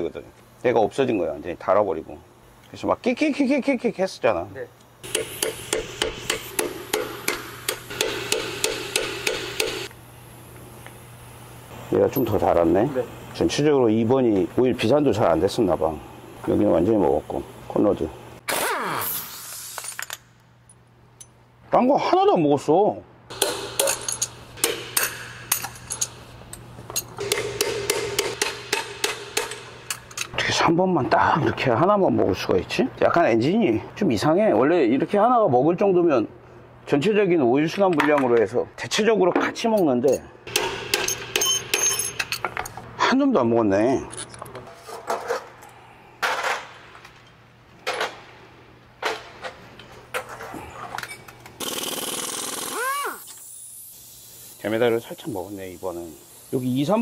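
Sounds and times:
pneumatic tool hissing: 5.0 - 9.9, 18.5 - 20.1, 51.6 - 57.0
metal parts clinking in tray: 23.8 - 24.4, 25.0 - 27.2, 41.1 - 42.8.

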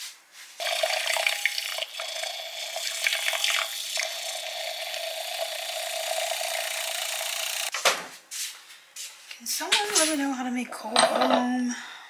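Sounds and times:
milk frother whirring: 0.6 - 7.7.

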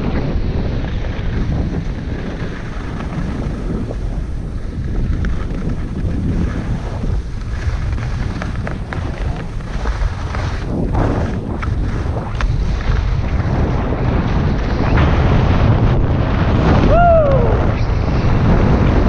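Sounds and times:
skis scraping over snow: 0.0 - 19.0
wind buffeting microphone: 0.0 - 19.0.

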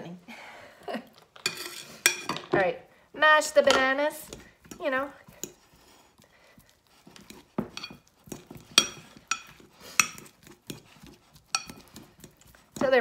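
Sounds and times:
fork clinking on ceramic dish: 1.4 - 2.4, 7.7 - 10.8, 11.4 - 12.4
bananas squishing: 4.1 - 13.0.

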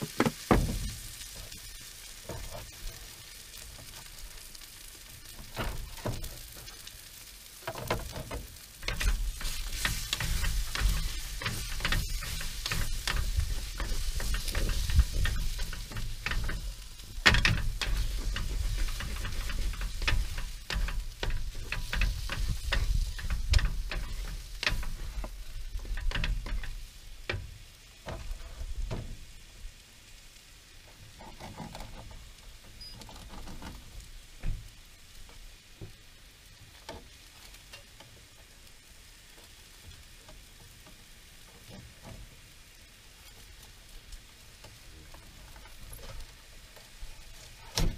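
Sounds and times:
food sizzling: 0.0 - 31.4, 33.8 - 47.9
spatula scraping frying pan: 8.6 - 26.9
faint ticks: 30.8 - 42.4.

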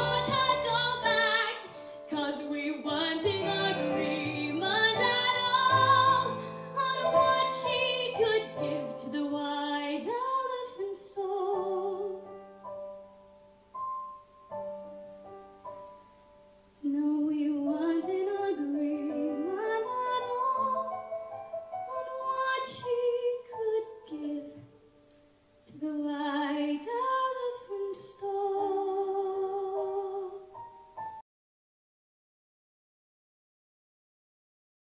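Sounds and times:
woman singing with vibrato: 0.0 - 12.3, 16.8 - 21.0, 21.9 - 24.6, 25.7 - 30.5
piano accompaniment: 0.0 - 31.2.

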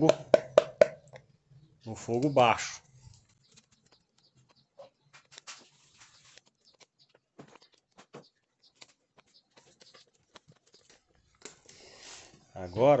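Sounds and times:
firewood crackling and popping: 2.0 - 11.9.

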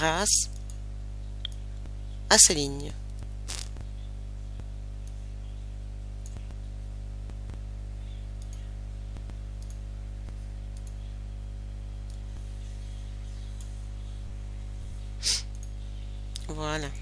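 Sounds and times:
low electrical hum: 0.0 - 17.0
computer mouse clicking: 8.4 - 11.1.

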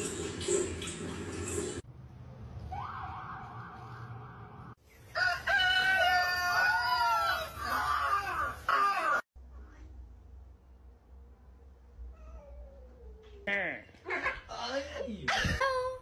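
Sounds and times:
rooster crowing: 5.1 - 9.2.

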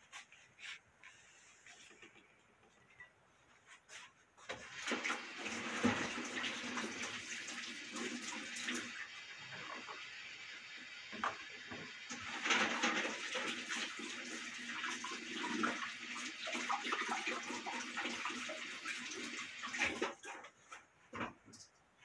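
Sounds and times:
water running into a sink: 4.5 - 20.5.

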